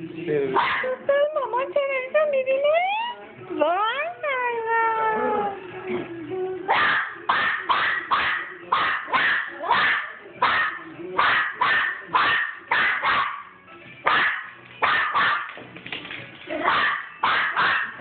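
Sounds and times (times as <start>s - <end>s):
small dog barking: 0.6s - 0.9s, 6.7s - 15.5s, 16.6s - 18.0s.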